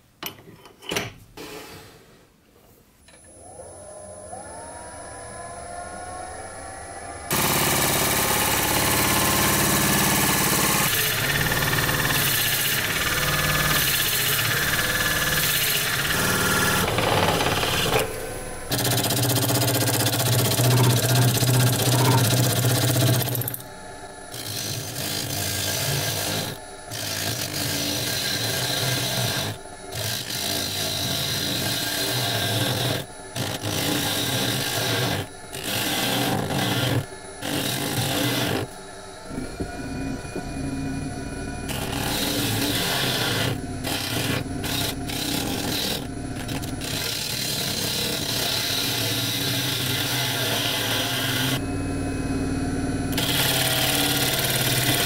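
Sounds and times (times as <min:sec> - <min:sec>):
lathe hum: 0:03.2 - 0:55.0
drill bit boring into wood: 0:07.3 - 0:18.1, 0:18.7 - 0:23.7, 0:24.3 - 0:38.8, 0:41.7 - 0:51.6, 0:53.1 - 0:55.0
lathe tool scraping wood: 0:07.3 - 0:23.6, 0:24.3 - 0:40.5, 0:41.7 - 0:51.6, 0:53.2 - 0:55.0.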